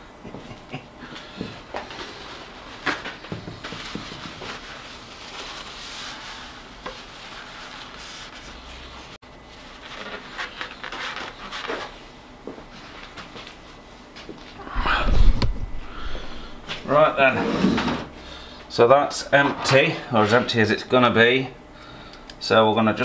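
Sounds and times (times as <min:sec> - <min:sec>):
paper tissue rubbing on metal: 0:04.4 - 0:09.2.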